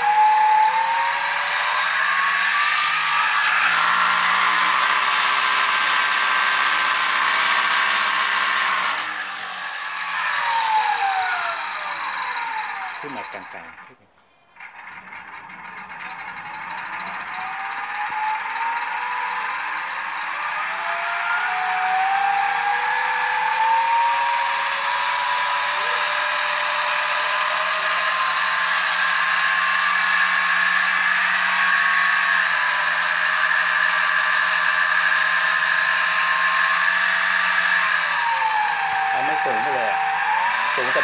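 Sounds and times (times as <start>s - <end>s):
electric motor whine: 0.0s - 13.6s, 16.1s - 41.0s.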